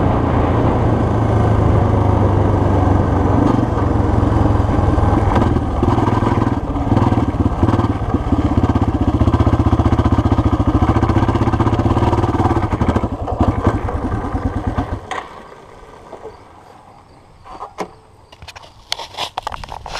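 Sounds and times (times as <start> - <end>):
dirt bike engine running: 0.0 - 16.6.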